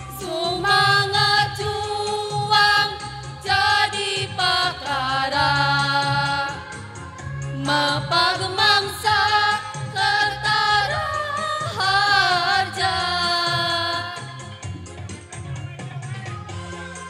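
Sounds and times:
women's choir singing through pa: 0.1 - 6.8, 7.6 - 14.3.

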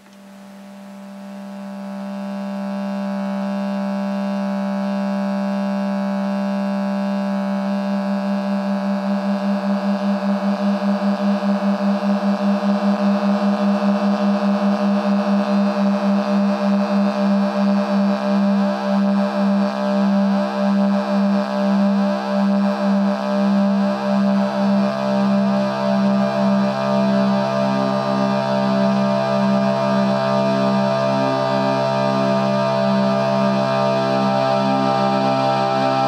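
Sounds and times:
buzzy synthesizer drone: 0.6 - 36.0.

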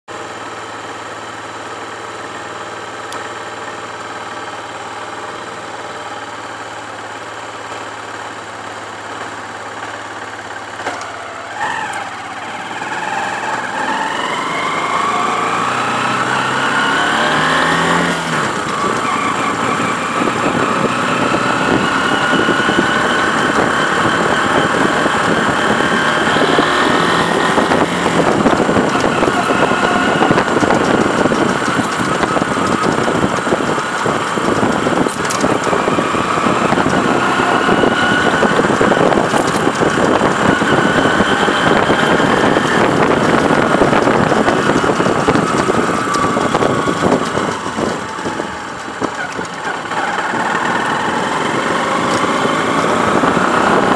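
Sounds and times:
motorcycle engine revving with whine: 0.1 - 53.9
motorcycle engine idling: 0.2 - 12.6.

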